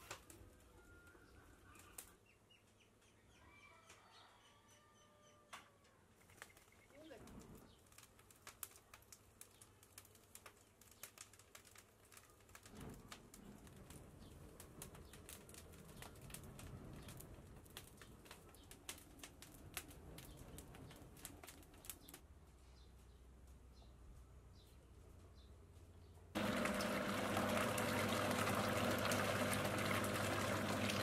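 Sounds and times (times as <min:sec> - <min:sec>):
wood fire crackling and popping: 0:00.0 - 0:00.6, 0:06.2 - 0:23.7, 0:26.3 - 0:31.0
low rumble of flames: 0:07.1 - 0:22.6, 0:26.3 - 0:31.0.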